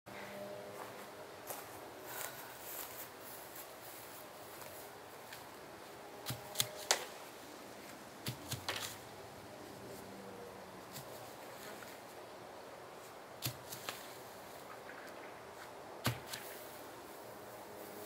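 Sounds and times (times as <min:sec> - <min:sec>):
dry coconuts knocking and rustling: 0:06.2 - 0:07.2, 0:07.8 - 0:09.2, 0:13.0 - 0:16.8.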